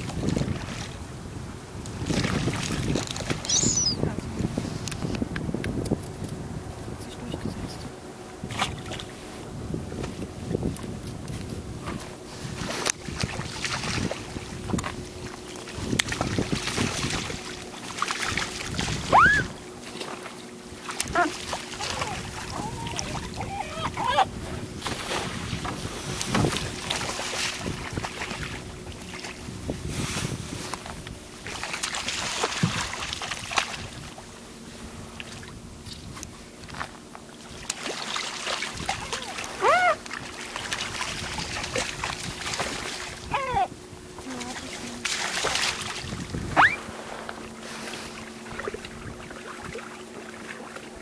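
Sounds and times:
wind buffeting microphone: 0.0s - 19.8s, 21.0s - 36.9s, 45.7s - 47.7s, 48.4s - 49.9s
water splashing: 1.9s - 4.2s, 12.4s - 29.5s, 31.3s - 34.3s, 37.2s - 51.0s
gull calling: 3.4s - 4.1s, 19.1s - 19.6s, 21.1s - 24.4s, 39.0s - 40.1s, 43.2s - 43.8s, 46.5s - 46.8s.

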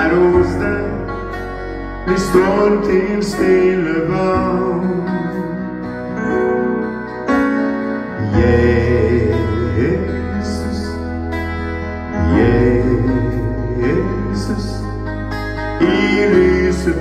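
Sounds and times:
man singing: 0.0s - 1.4s, 2.0s - 6.0s, 8.1s - 11.3s, 12.1s - 17.0s
electronic keyboard chords: 0.0s - 17.0s.

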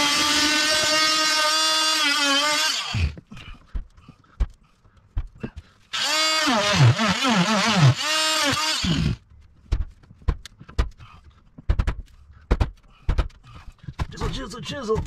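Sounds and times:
rotary tool cutting wood: 0.0s - 3.2s, 5.9s - 9.2s.

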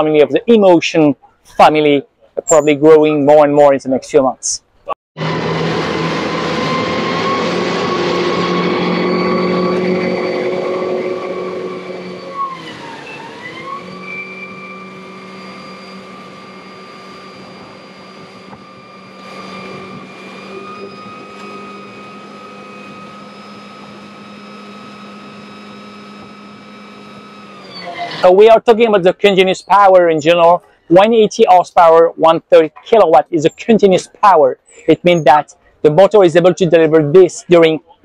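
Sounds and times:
electric motor whine: 5.2s - 28.3s.

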